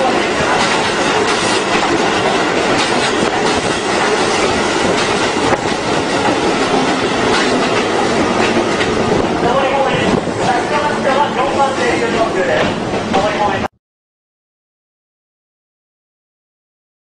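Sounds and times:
wheels clacking over rail joints: 0:00.0 - 0:11.3
train wheels rushing on rails: 0:00.0 - 0:13.7.

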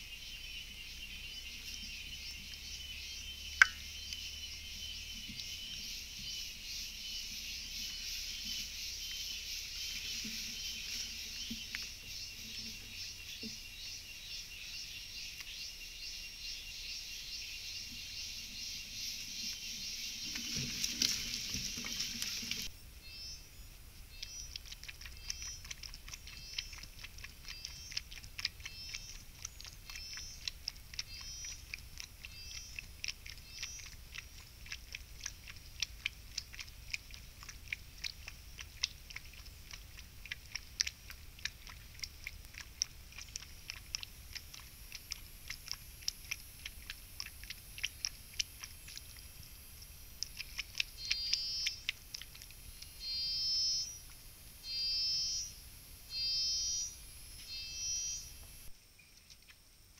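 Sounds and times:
animal lapping water: 0:08.4 - 0:13.8, 0:19.2 - 0:22.8, 0:24.1 - 0:53.1
insects buzzing: 0:52.7 - 0:59.3.

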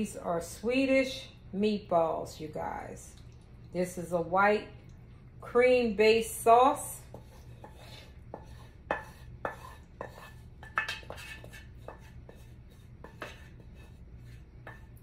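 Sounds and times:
wooden spatula scraping skillet: 0:07.0 - 0:15.0.

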